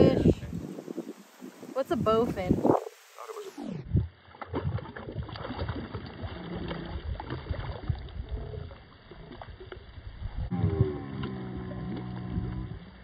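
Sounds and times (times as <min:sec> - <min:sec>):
fish splashing at water surface: 0:04.2 - 0:09.9.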